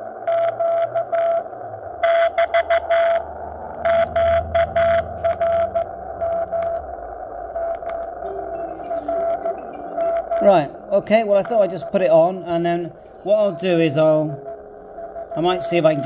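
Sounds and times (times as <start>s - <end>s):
morse code tone: 0.3s - 6.8s, 7.6s - 16.0s
radio hiss: 10.2s - 16.0s.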